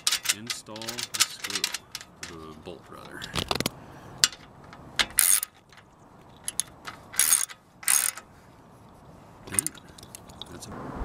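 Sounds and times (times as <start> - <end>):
ratchet wrench clicking: 0.0 - 2.5, 4.2 - 5.7, 6.4 - 8.2.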